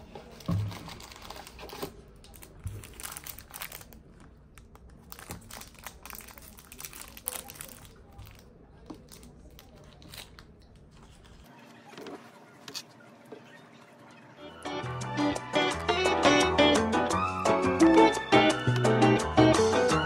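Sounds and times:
crinkling and rustling: 0:00.0 - 0:12.9.

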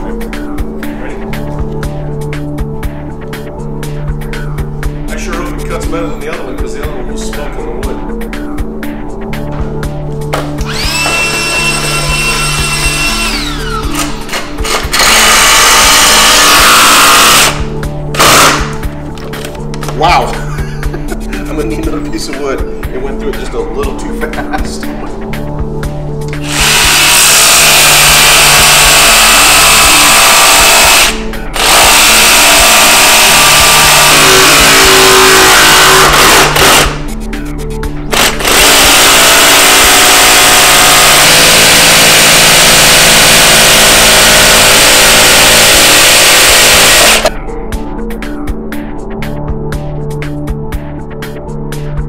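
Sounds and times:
background music with bass: 0:00.0 - 0:52.0
jigsaw cutting plank: 0:10.6 - 0:17.6, 0:18.2 - 0:18.8, 0:26.4 - 0:37.0, 0:38.1 - 0:47.3
jigsaw whining: 0:10.6 - 0:17.6, 0:18.2 - 0:18.8, 0:26.4 - 0:37.0, 0:38.1 - 0:47.3.

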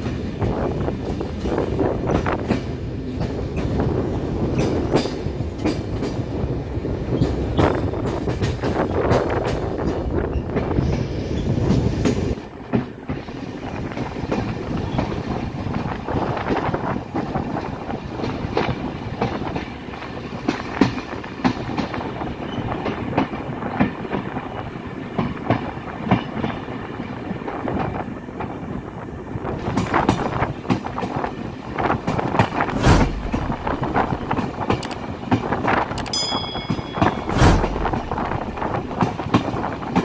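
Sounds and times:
train wheels rattling over rail joints: 0:00.0 - 0:40.0
heavy thumps: 0:32.7 - 0:34.4, 0:37.0 - 0:39.2.

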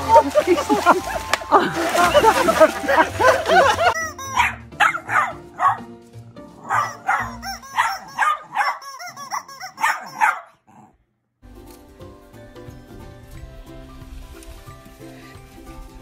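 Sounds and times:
background music: 0:00.0 - 0:10.4, 0:11.4 - 0:16.0
dog barking short barks: 0:04.3 - 0:05.8, 0:06.6 - 0:10.6.

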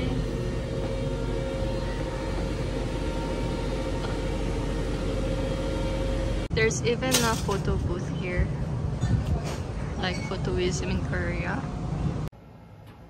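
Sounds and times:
faint hum: 0:00.0 - 0:07.0
elevator car rumbling: 0:00.0 - 0:13.0.

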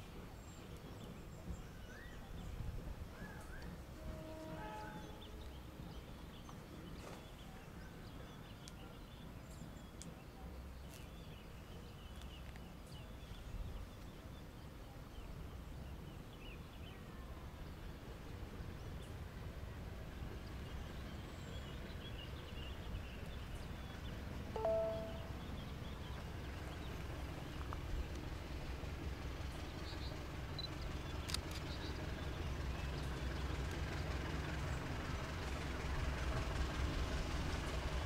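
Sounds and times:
faint high chirps: 0:24.6 - 0:25.9.

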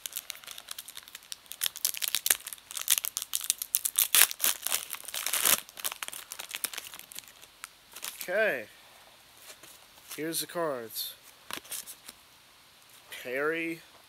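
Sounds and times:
wrapper crinkling and tearing: 0:00.0 - 0:08.3.

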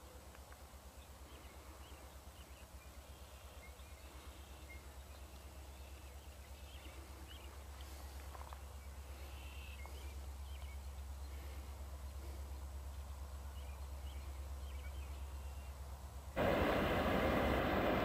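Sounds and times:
faint bird chirps: 0:01.0 - 0:15.8
distant diesel locomotive rumble: 0:07.0 - 0:18.0.

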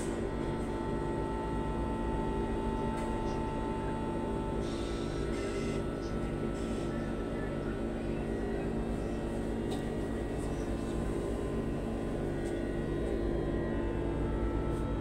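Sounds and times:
low pulsing hum: 0:00.0 - 0:15.0
electric drive hum: 0:10.0 - 0:15.0.

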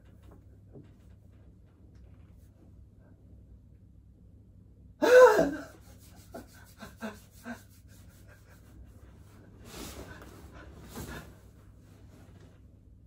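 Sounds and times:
man crying out in pain: 0:05.0 - 0:05.8.

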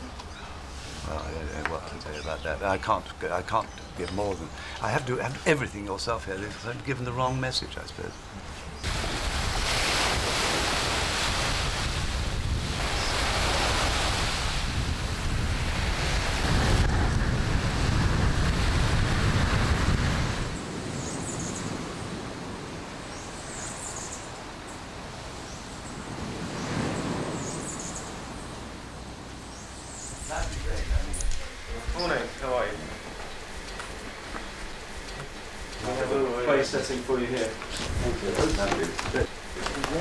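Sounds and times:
wind: 0:00.0 - 0:40.0
surf: 0:05.1 - 0:40.0
wind buffeting microphone: 0:08.3 - 0:23.0, 0:30.2 - 0:40.0.

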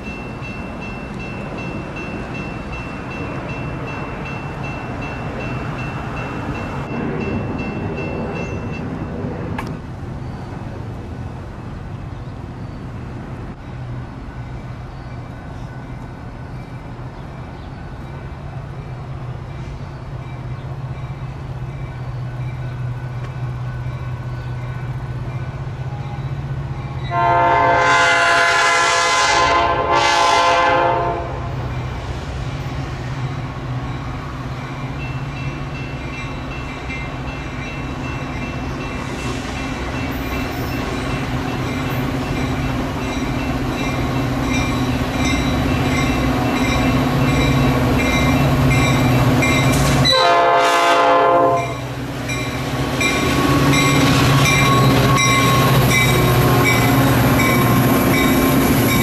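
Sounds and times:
train rumble: 0:00.0 - 0:59.0
locomotive horn blasts: 0:27.1 - 0:31.5, 0:50.0 - 0:51.8.

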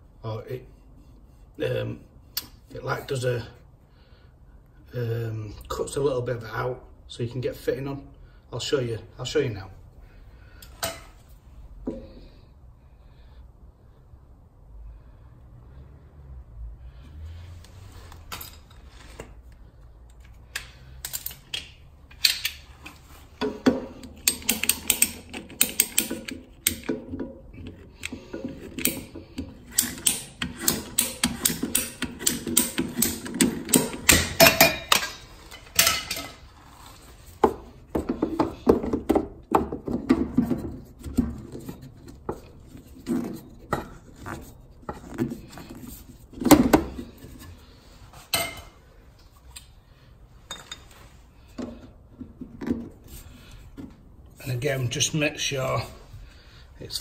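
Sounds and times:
pipe cutter clicking: 0:24.0 - 0:27.0, 0:27.6 - 0:35.0.

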